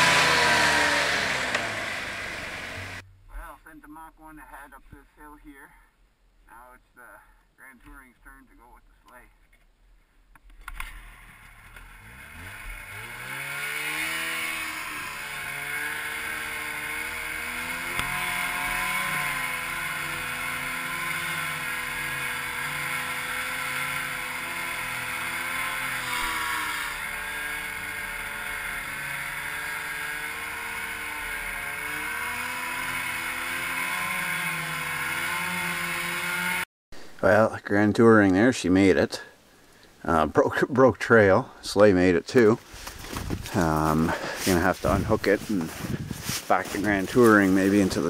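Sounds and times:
snowmobile engine revving: 0.0 - 3.0, 10.7 - 36.7, 41.8 - 48.0.

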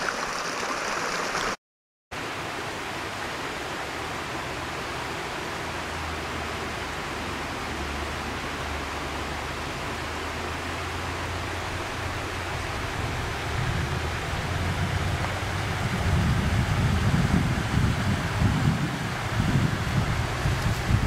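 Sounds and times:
mountain stream rushing: 0.0 - 1.6, 2.2 - 21.0
wind buffeting microphone: 12.3 - 21.0.

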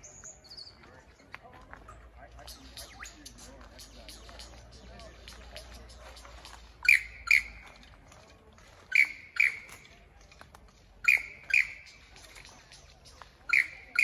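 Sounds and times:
lyrebird calling: 2.3 - 7.8, 8.9 - 9.8, 11.0 - 14.0.

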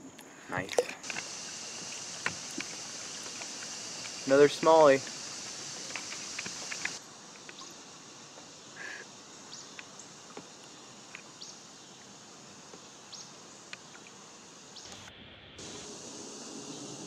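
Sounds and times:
steady hiss: 0.0 - 17.0
high downward-sliding chirps: 0.5 - 7.0.

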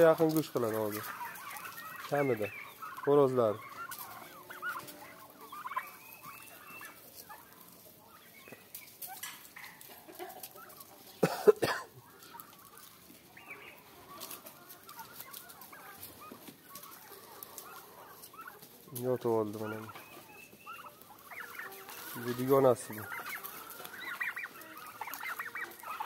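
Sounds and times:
turkey clucks and peeps: 0.0 - 26.0
young turkeys calling: 0.0 - 26.0.

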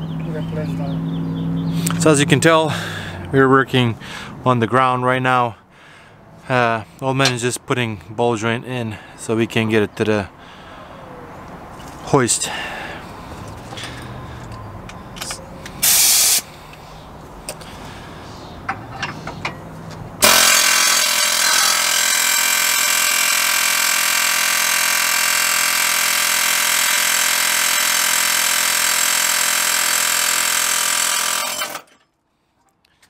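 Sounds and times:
pneumatic air hammer: 15.2 - 16.5, 20.2 - 32.0.

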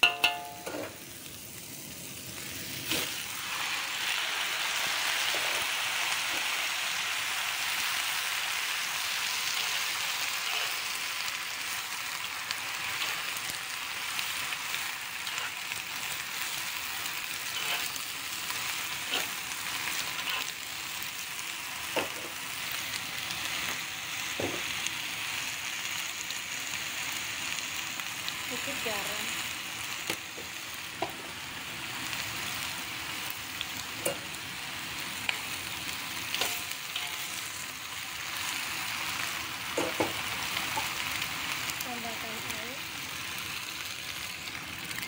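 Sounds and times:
vegetables sizzling in hot oil: 0.0 - 45.0
spatula scraping and knocking pan: 17.5 - 18.0.

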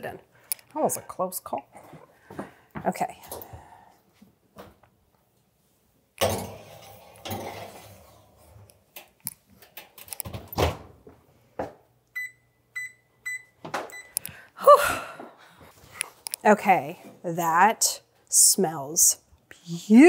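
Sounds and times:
oven beeps: 12.2 - 14.2.

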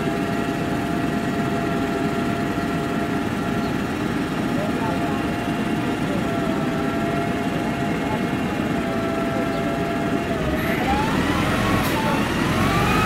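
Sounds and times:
bus engine idling rumble: 0.0 - 13.0.

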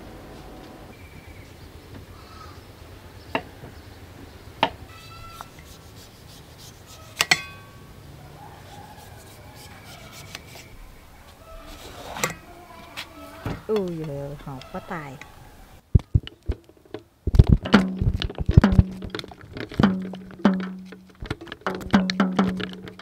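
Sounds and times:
low background noise: 0.0 - 23.0
tableware clinking: 7.2 - 7.9.

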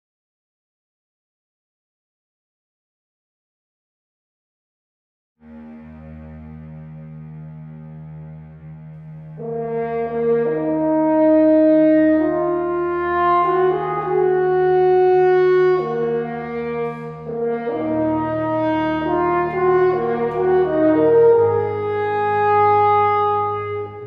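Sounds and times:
french horn melody: 5.4 - 24.0
low sustained note: 5.4 - 24.0.

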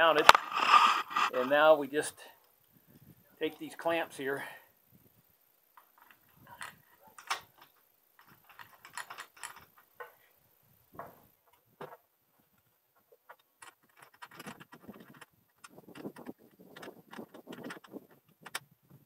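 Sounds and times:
metal clamps clicking and rattling: 5.8 - 10.2, 13.3 - 18.6.

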